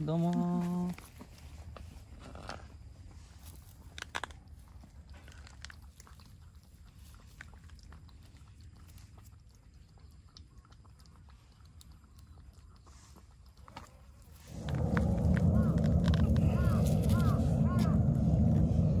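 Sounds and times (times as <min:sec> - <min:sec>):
cat lapping milk: 0:03.5 - 0:15.7.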